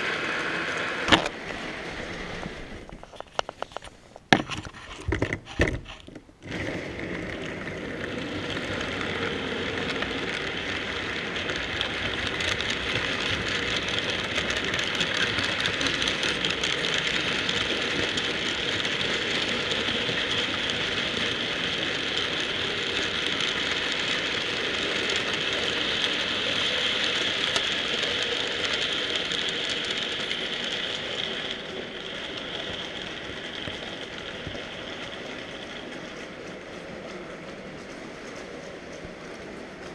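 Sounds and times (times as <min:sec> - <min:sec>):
model train whirring rattle: 0:00.0 - 0:39.9.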